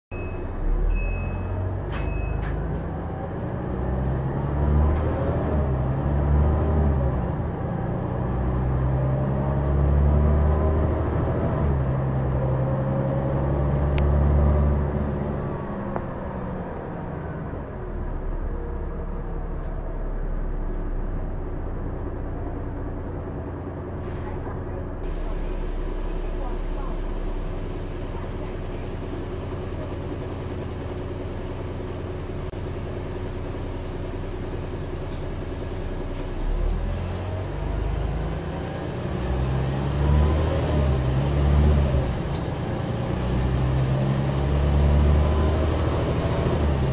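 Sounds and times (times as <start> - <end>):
short high beeps: 0.1 - 2.4
bus diesel engine: 0.1 - 46.9.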